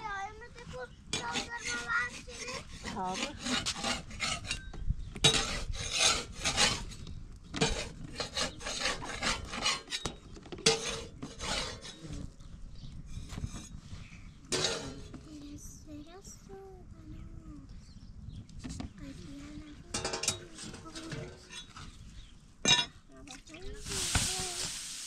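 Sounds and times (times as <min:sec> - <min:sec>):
rasping scraping strokes: 0:01.1 - 0:07.0, 0:07.6 - 0:12.3.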